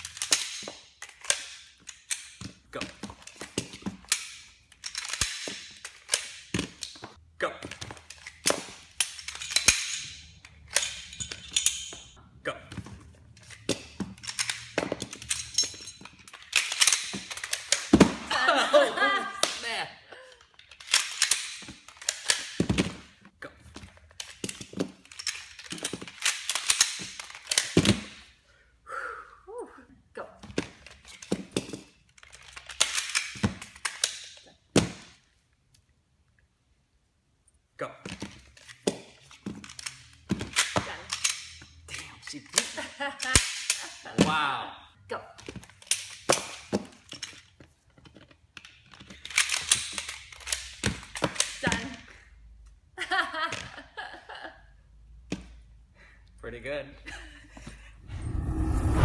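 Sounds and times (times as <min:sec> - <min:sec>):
pistol parts clicking: 0:00.0 - 0:12.2, 0:13.3 - 0:18.1, 0:20.3 - 0:22.8, 0:23.8 - 0:28.2, 0:30.8 - 0:34.9, 0:38.2 - 0:44.0, 0:45.6 - 0:51.9.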